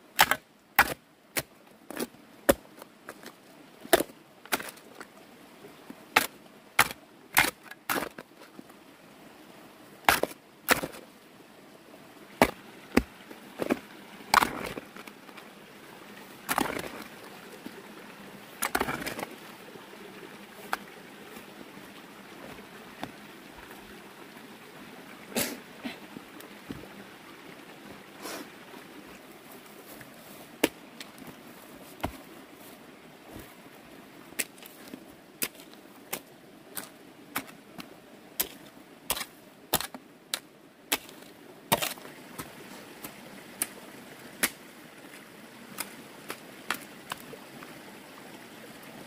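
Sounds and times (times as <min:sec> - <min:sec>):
digging tool chopping into soil: 0:00.2 - 0:02.6, 0:06.2 - 0:08.2, 0:10.1 - 0:11.0, 0:12.4 - 0:14.8, 0:16.5 - 0:17.0
earth scraping and rustling: 0:05.8 - 0:08.8, 0:10.0 - 0:11.1, 0:12.3 - 0:23.8, 0:29.2 - 0:33.7, 0:34.3 - 0:47.7.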